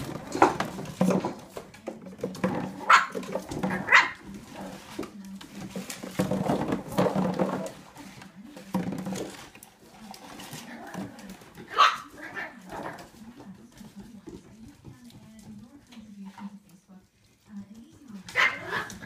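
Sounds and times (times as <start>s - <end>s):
plastic bottle knocking and scraping: 0.0s - 14.9s
puppies barking and yipping: 10.9s - 13.0s.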